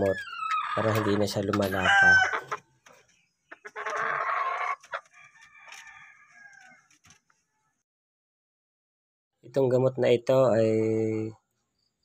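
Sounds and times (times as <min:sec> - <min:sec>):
rooster crowing: 0:00.6 - 0:02.6, 0:04.0 - 0:06.9.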